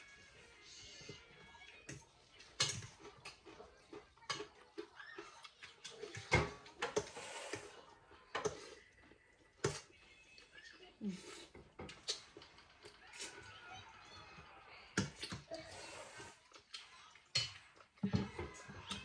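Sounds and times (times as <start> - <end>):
utensils clinking against dishes: 1.8 - 7.7.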